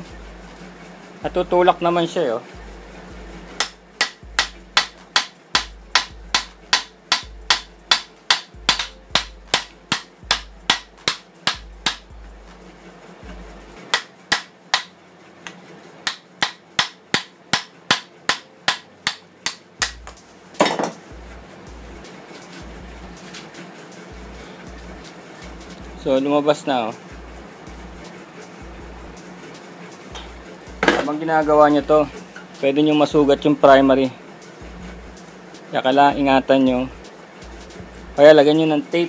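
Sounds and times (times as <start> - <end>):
hammer striking steel bolt: 3.6 - 12.0, 16.0 - 21.0.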